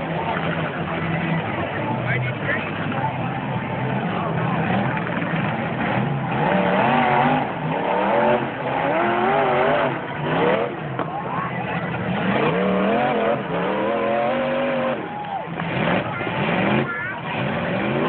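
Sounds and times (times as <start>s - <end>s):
crowd noise: 0.0s - 18.0s
truck engines revving: 0.0s - 18.0s.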